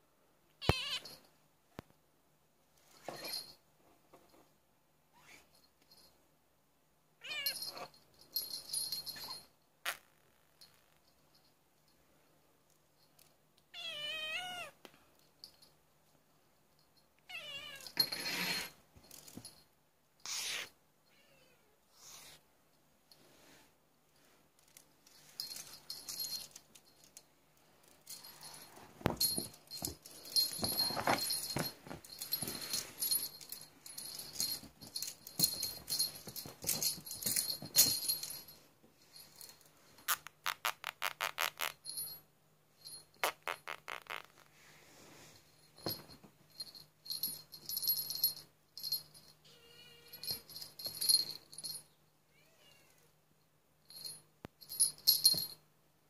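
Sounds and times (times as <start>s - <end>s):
toy rattling and jingling: 7.2s - 9.5s, 24.6s - 40.2s, 41.0s - 42.2s, 45.6s - 49.5s, 50.1s - 52.0s, 53.9s - 55.6s.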